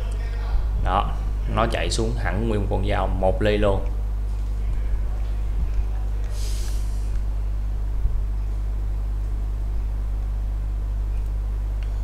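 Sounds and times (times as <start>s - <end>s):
low electrical hum: 0.0s - 12.0s
brief hiss: 6.3s - 7.2s.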